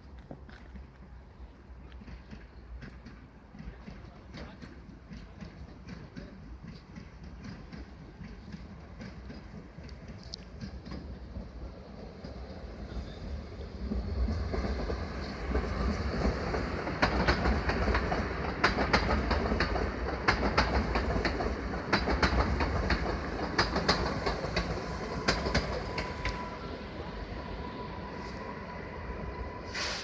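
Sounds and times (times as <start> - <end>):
train wheels clacking over rail joints: 1.8 - 12.5, 13.8 - 26.5
electric train running: 7.0 - 30.0.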